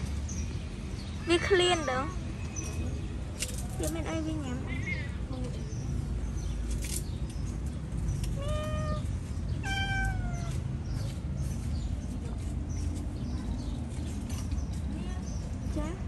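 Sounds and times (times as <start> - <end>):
cat meowing: 8.4 - 10.6.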